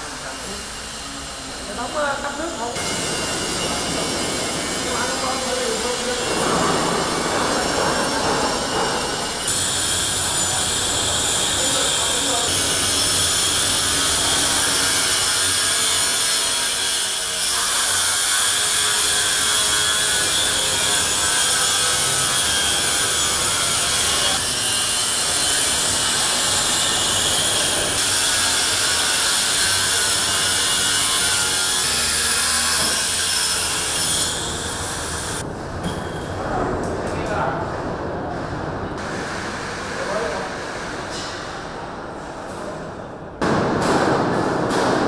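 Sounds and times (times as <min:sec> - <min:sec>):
power tool grinding hiss: 0:00.1 - 0:35.4.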